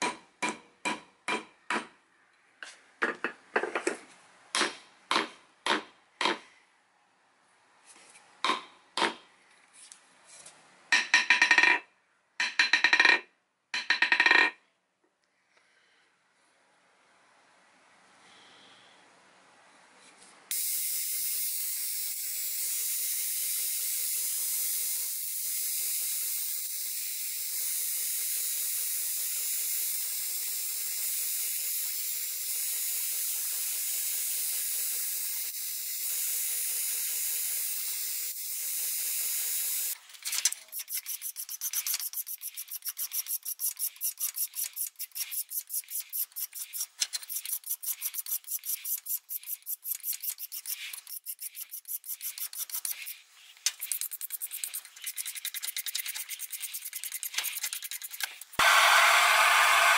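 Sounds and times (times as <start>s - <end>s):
hand file rasping on metal: 40.7s - 58.3s.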